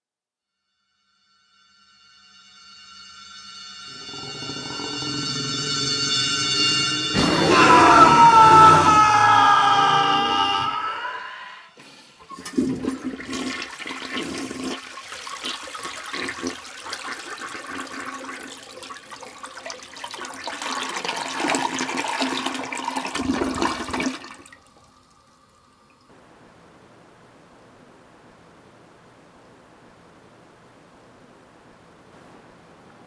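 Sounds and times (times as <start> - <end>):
faint hiss: 11.4 - 12.7, 24.4 - 33.0
urinal flushing: 11.8 - 26.1.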